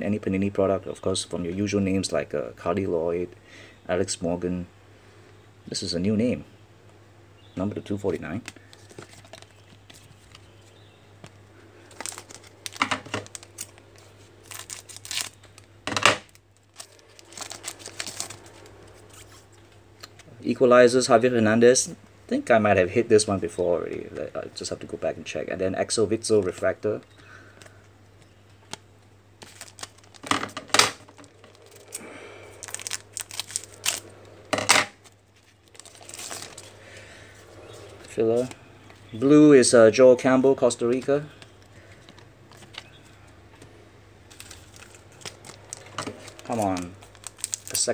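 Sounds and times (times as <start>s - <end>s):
card stock rustling: 8.1s - 15.6s, 16.3s - 19.5s, 29.4s - 30.3s, 31.1s - 34.1s, 35.4s - 39.0s, 44.3s - 47.9s
foil wrapper tearing and crinkling: 11.9s - 19.4s, 29.4s - 30.3s, 31.1s - 34.1s, 35.0s - 36.7s, 44.3s - 47.9s.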